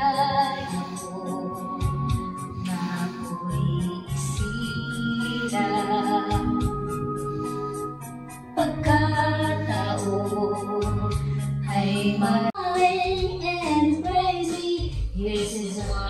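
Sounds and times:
person singing over music: 0:00.0 - 0:08.0
held music chords: 0:00.0 - 0:16.0.

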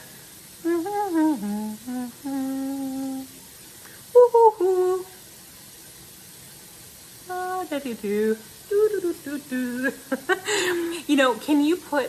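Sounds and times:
woman humming: 0:00.6 - 0:03.4, 0:04.1 - 0:05.2, 0:07.3 - 0:07.7, 0:08.7 - 0:11.0.

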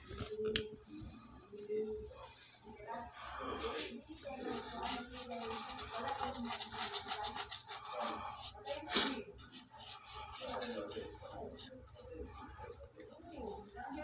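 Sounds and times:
brush scrape: 0:03.5 - 0:14.0
paintbrush scrubbing on wall: 0:03.5 - 0:14.0.

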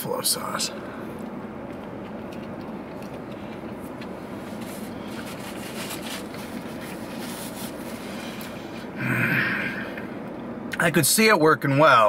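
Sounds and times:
car cabin hum: 0:00.0 - 0:09.0
person chewing: 0:01.2 - 0:07.2.

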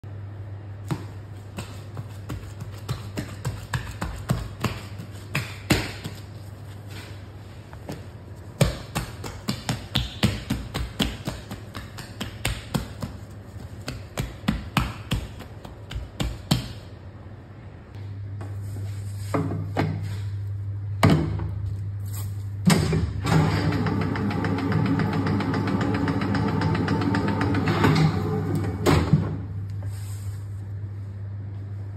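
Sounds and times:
hands slapping dough: 0:00.8 - 0:06.5, 0:07.9 - 0:16.9
heavy machine clunks: 0:22.7 - 0:29.5
machine motor humming: 0:22.8 - 0:29.4.

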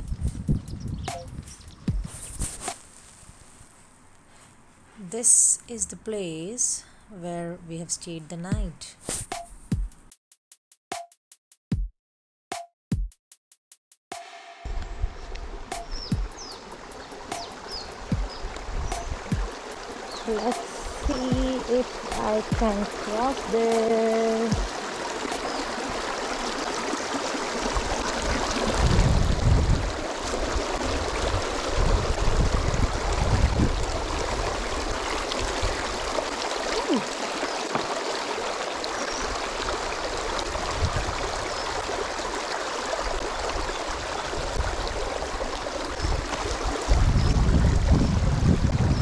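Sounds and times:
wind buffeting microphone: 0:00.0 - 0:02.5, 0:17.7 - 0:22.9, 0:27.6 - 0:36.2, 0:39.3 - 0:41.6, 0:43.4 - 0:49.0
river gurgling over stones: 0:15.5 - 0:48.0.

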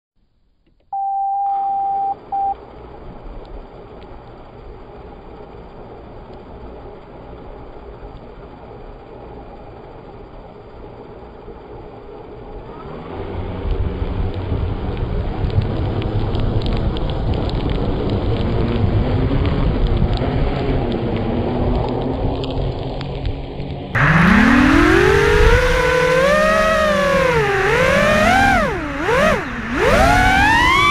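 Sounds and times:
quadcopter motors and propellers: 0:24.0 - 0:30.9.

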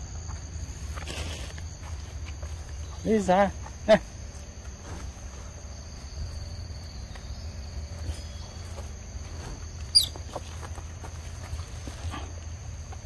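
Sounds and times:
insects calling in high tones: 0:00.0 - 0:13.0.

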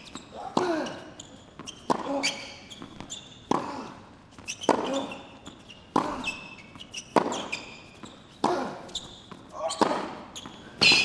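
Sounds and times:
shoes squeaking on court: 0:00.0 - 0:11.0
tennis racket hitting ball: 0:01.6 - 0:05.2, 0:05.9 - 0:11.0.

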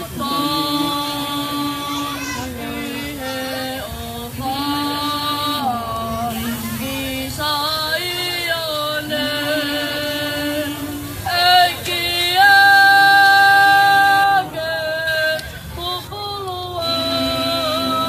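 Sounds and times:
youth choir singing: 0:00.0 - 0:18.0.

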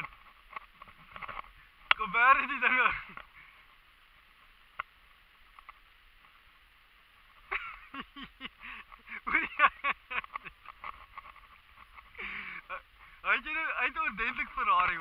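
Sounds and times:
people laughing: 0:07.5 - 0:10.7.

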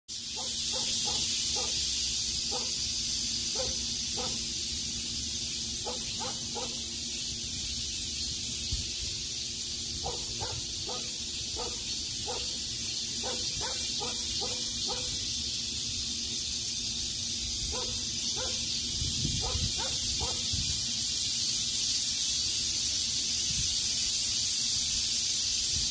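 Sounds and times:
cicadas droning: 0:00.1 - 0:25.9
dog barking: 0:00.4 - 0:01.8, 0:02.5 - 0:02.8, 0:03.5 - 0:04.4, 0:05.8 - 0:06.8, 0:10.0 - 0:12.6, 0:13.2 - 0:15.2, 0:17.7 - 0:18.6, 0:19.4 - 0:20.5.

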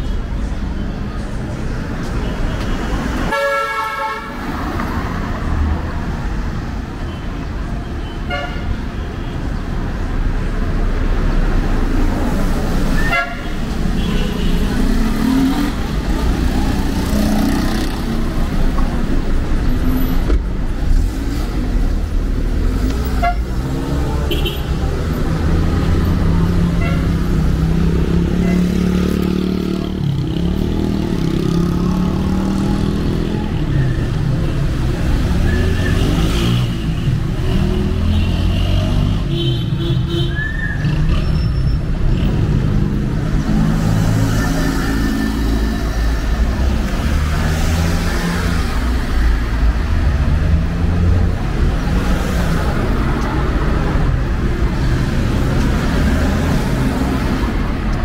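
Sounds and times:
cars driving past: 0:10.0 - 0:39.3, 0:40.7 - 0:58.0.

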